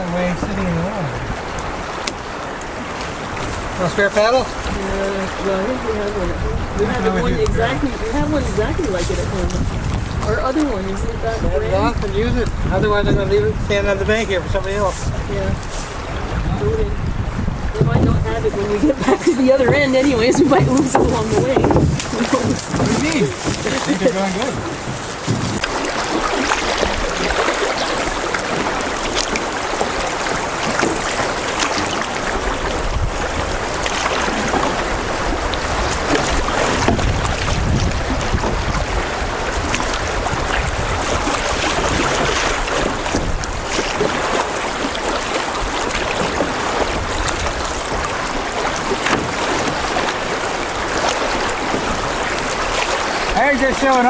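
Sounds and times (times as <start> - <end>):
wind rumble on microphone: 0.0 - 54.0
river water rushing over rocks: 19.0 - 54.0.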